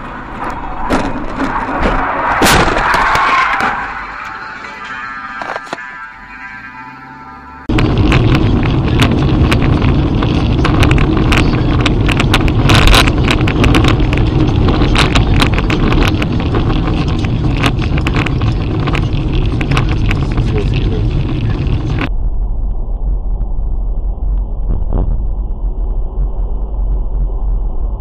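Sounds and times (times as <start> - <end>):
road and wind rumble: 0.0 - 28.0
clicks and rattles: 7.7 - 22.1.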